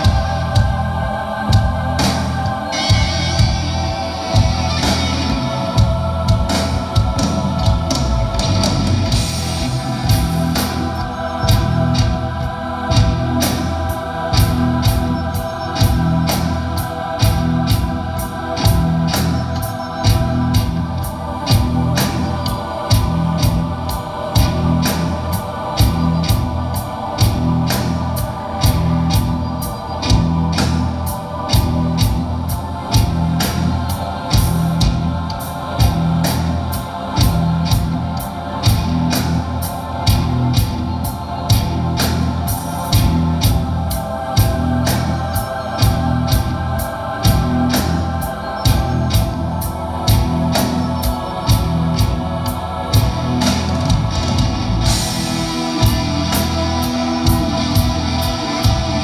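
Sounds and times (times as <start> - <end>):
bass guitar: 0.0 - 59.0
drum kit beat: 0.0 - 59.0
organ-like keyboard chords: 0.0 - 59.0.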